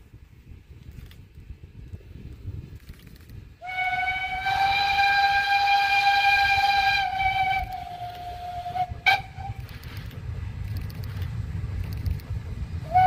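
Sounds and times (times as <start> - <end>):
steam whistle blast: 3.6 - 9.6.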